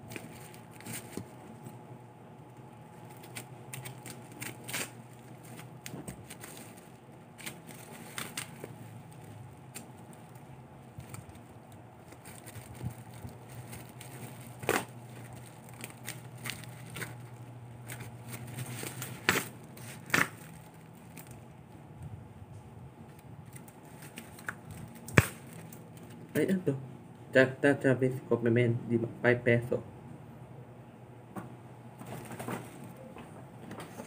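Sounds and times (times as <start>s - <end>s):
plastic packaging crinkling: 0.0s - 1.8s, 2.6s - 21.5s, 23.4s - 26.4s, 32.0s - 33.1s.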